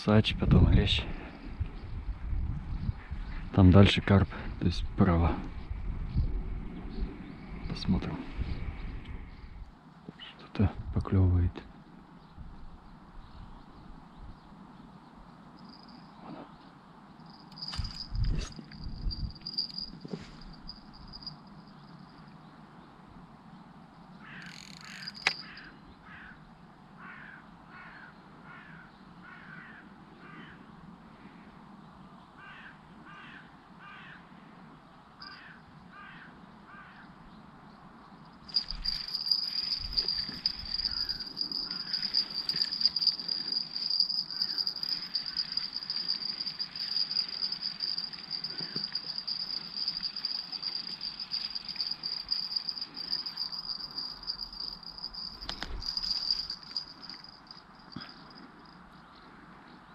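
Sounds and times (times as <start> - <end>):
crickets trilling: 15.3 - 22.6, 24.0 - 26.4, 35.1 - 59.1
bird repeated calls: 39.7 - 42.4.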